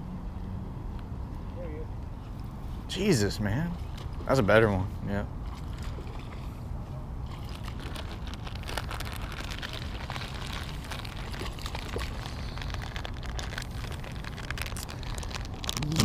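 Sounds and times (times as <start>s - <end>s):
faint crackles and ticks: 7.4s - 16.0s.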